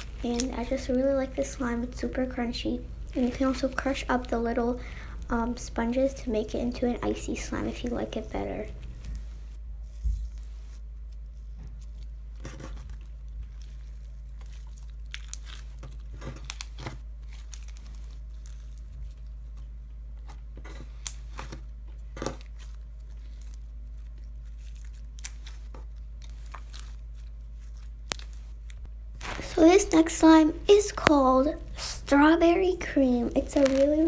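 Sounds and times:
slime crunching and popping: 0:11.6 - 0:31.2, 0:33.3 - 0:34.0.

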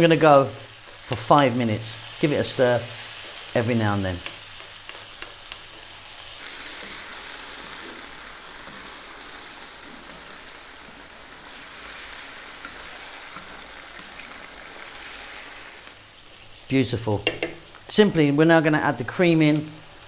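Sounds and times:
sauce sizzling in a frying pan: 0:00.0 - 0:20.0.

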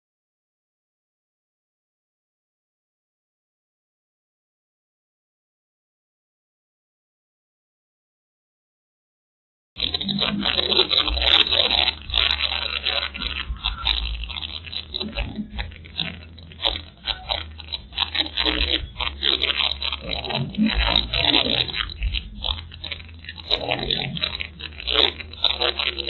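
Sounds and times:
crackling and scraping noise: 0:09.8 - 0:26.0.

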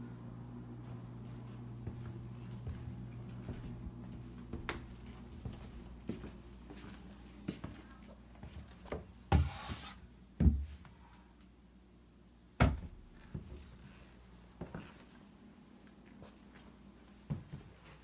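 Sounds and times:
footsteps: 0:00.8 - 0:09.8.

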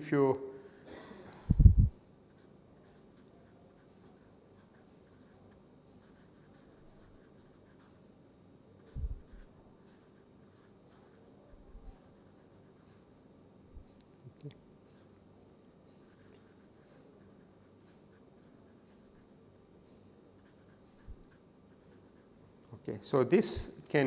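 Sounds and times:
marker writing on paper: 0:02.3 - 0:08.0, 0:08.8 - 0:13.0, 0:16.0 - 0:19.4, 0:20.4 - 0:22.3.

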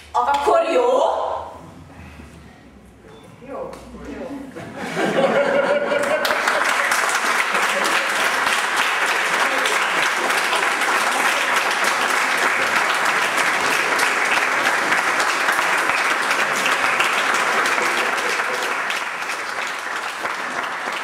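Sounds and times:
audience applauding: 0:04.9 - 0:21.0.

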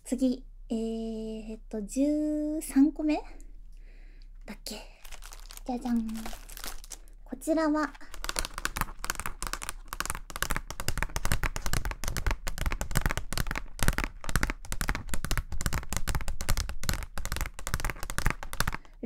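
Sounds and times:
fingernails tapping on plastic: 0:08.2 - 0:18.9.

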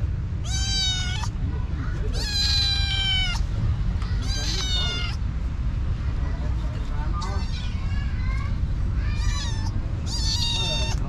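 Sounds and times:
steady low rumble: 0:00.0 - 0:11.0
kitten meowing: 0:00.4 - 0:01.4, 0:02.1 - 0:03.5, 0:04.1 - 0:05.2, 0:07.2 - 0:07.9, 0:09.0 - 0:11.0.

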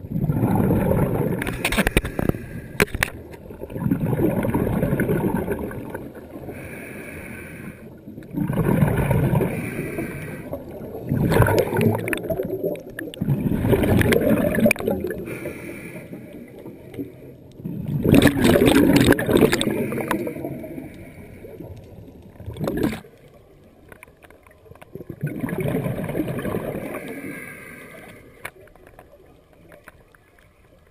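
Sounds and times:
bubbling exhales underwater: 0:00.0 - 0:02.9, 0:03.5 - 0:06.7, 0:08.2 - 0:15.7, 0:17.6 - 0:21.7, 0:22.4 - 0:23.1, 0:24.9 - 0:27.6
hissing regulator inhales: 0:06.5 - 0:07.9, 0:09.5 - 0:10.6, 0:15.2 - 0:16.4, 0:26.9 - 0:28.4.

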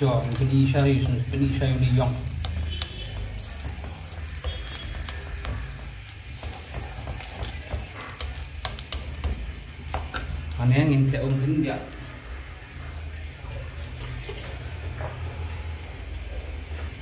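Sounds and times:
paste sizzling in oil: 0:00.0 - 0:13.2
wooden spatula stirring in pan: 0:00.0 - 0:17.0.

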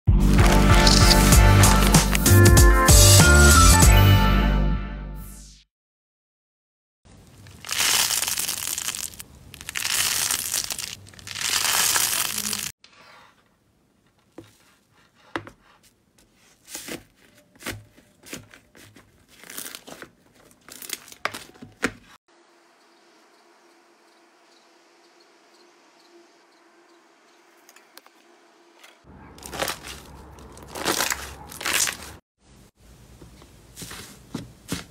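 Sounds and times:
slime crackling: 0:07.4 - 0:12.7, 0:29.4 - 0:32.2
slime squishing: 0:29.4 - 0:32.2.

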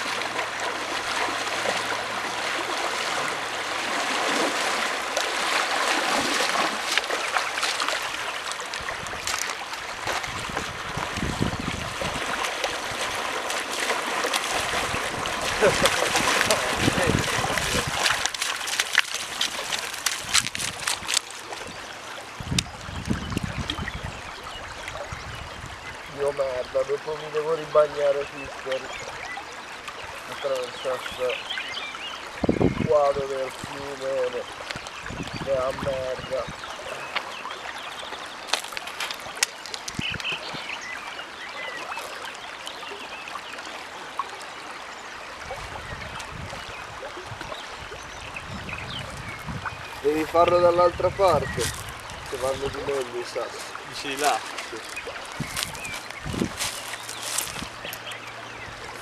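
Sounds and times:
river rippling over gravel: 0:00.0 - 0:59.0
wind rumbling on microphone: 0:06.0 - 0:26.4, 0:32.3 - 0:33.9, 0:34.6 - 0:37.1, 0:39.3 - 0:40.8, 0:45.3 - 0:59.0
dog shaking off water: 0:11.8 - 0:21.4.

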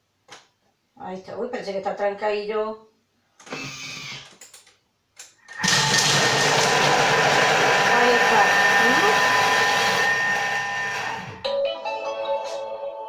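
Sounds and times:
food processor blades whirring: 0:05.5 - 0:11.4.

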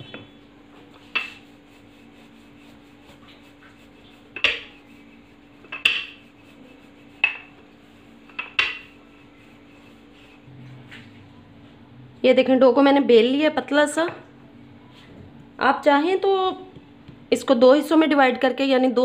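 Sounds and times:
rolling pin knocking on marble: 0:04.4 - 0:04.8, 0:05.6 - 0:06.2, 0:08.3 - 0:08.9.

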